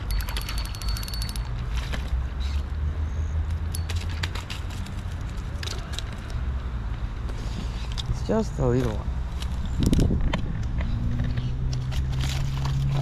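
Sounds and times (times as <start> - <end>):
fishing reel clicking: 0.0 - 1.5.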